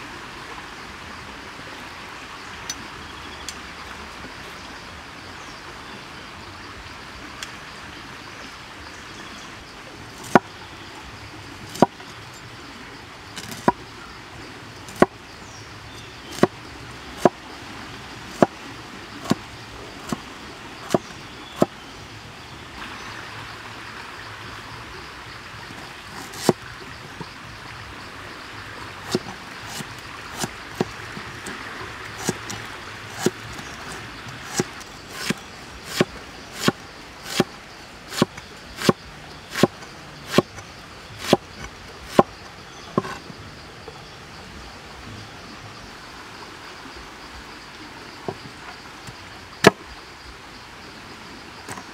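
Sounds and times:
cleaver chopping on wooden board: 10.2s - 10.5s, 11.7s - 12.0s, 13.4s - 13.8s, 14.9s - 15.1s, 16.3s - 16.6s, 17.2s - 17.4s, 18.3s - 18.6s, 19.2s - 19.4s, 20.9s - 21.8s, 26.2s - 26.6s, 29.1s - 31.6s, 32.2s - 37.5s, 38.1s - 40.6s, 41.2s - 42.3s, 43.0s - 43.2s, 49.6s - 49.8s.

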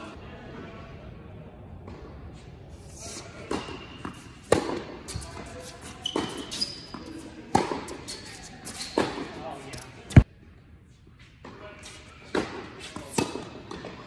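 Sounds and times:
shoe squeaks: 2.9s - 10.2s
tennis ball struck by rackets: 3.5s - 5.3s, 6.1s - 8.0s, 12.3s - 14.0s
ball bouncing on hard court: 3.5s - 9.3s.

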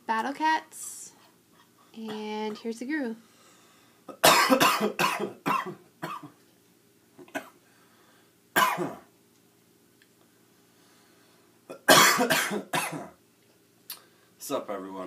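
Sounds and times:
person coughing: 4.1s - 6.4s, 8.6s - 9.1s, 11.7s - 13.2s.

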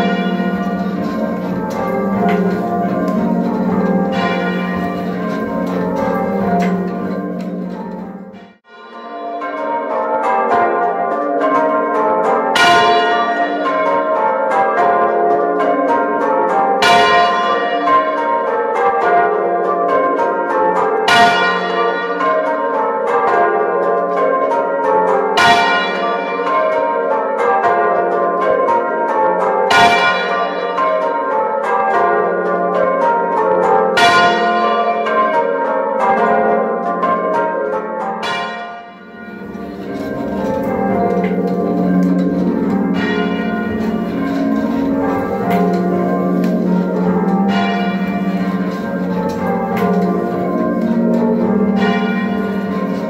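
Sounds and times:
clear bell strike: 0.0s - 10.4s, 38.2s - 53.0s
muffled church bells ringing: 0.0s - 53.0s.

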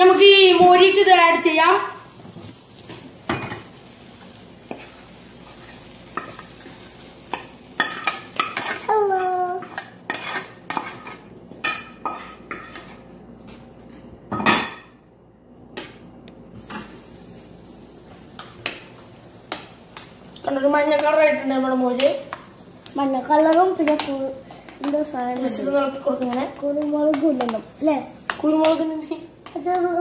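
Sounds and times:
spoon scraping a frying pan: 4.6s - 8.9s, 9.6s - 13.1s.

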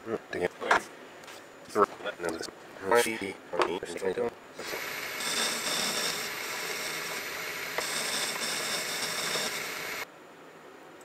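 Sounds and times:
metal lathe cutting with whine: 4.6s - 10.0s.

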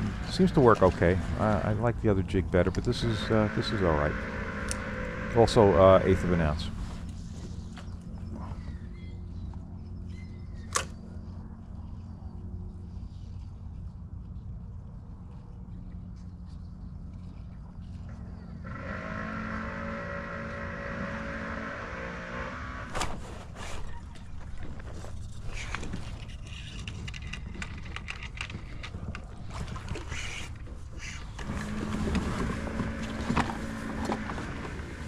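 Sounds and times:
fishing reel buzzing whine: 2.8s - 7.8s, 18.4s - 23.0s, 31.4s - 35.0s.

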